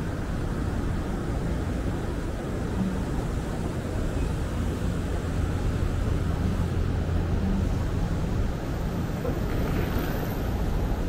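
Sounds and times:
traffic rumble: 0.0s - 11.0s.

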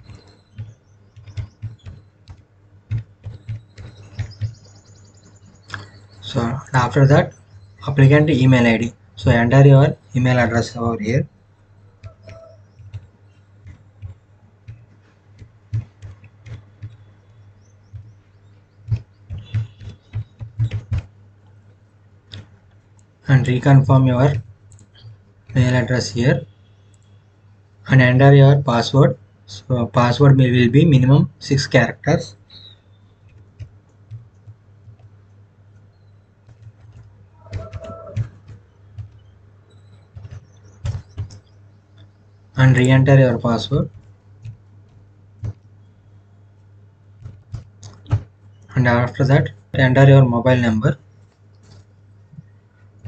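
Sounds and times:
keyboard keystroke clicks: 0.0s - 4.6s, 12.0s - 18.1s
keyboard keys clicking: 0.0s - 4.8s, 12.0s - 21.6s, 33.2s - 41.6s, 43.6s - 45.8s, 47.2s - 49.2s
low steady hum: 0.0s - 53.0s.

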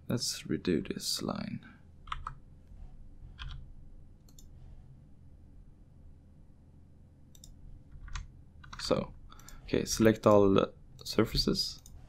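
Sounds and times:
low steady hum: 0.0s - 12.0s
computer mouse clicks: 3.4s - 4.6s, 7.3s - 10.4s, 11.7s - 12.0s.

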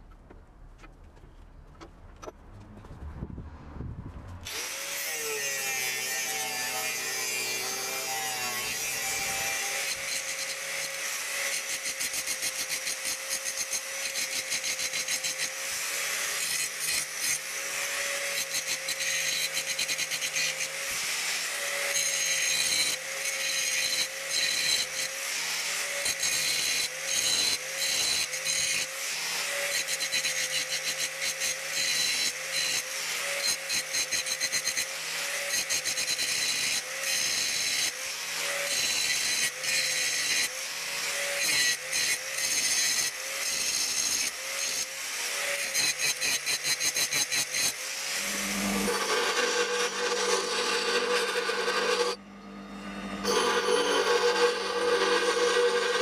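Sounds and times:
angle grinder motor whine: 47.8s - 56.0s
grinding disc hissing on steel: 47.9s - 56.0s.

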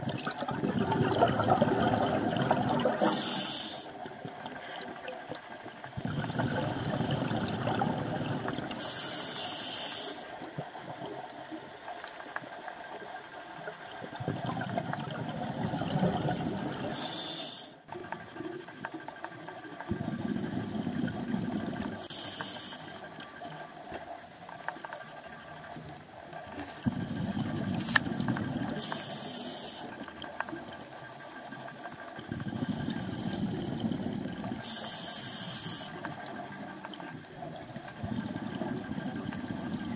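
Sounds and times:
regulator bubbling on exhale: 0.0s - 11.4s, 13.9s - 23.7s, 24.9s - 39.9s
regulator air hiss on inhale: 3.0s - 4.0s, 8.8s - 10.3s, 16.9s - 17.8s, 22.0s - 23.1s, 28.8s - 33.4s, 34.6s - 36.1s.

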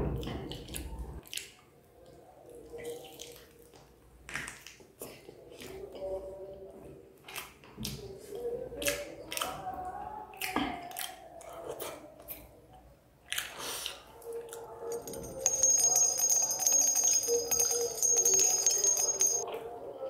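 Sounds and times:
wet chewing: 13.2s - 14.8s.

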